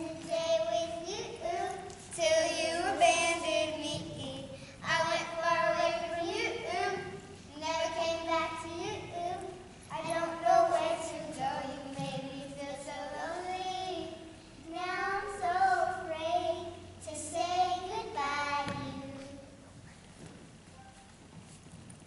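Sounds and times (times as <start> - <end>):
children singing: 0.0 - 14.2.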